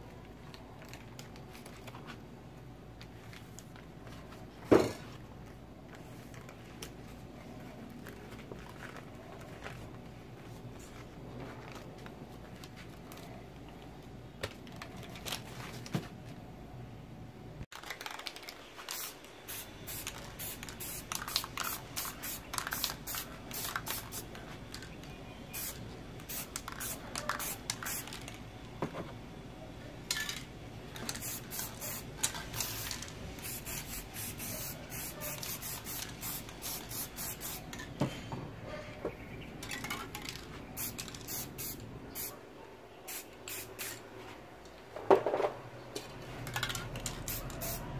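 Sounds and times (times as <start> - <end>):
spray paint can hissing: 18.8 - 24.3, 25.5 - 28.4, 31.0 - 37.8, 40.3 - 42.4, 43.1 - 44.0, 46.6 - 47.9.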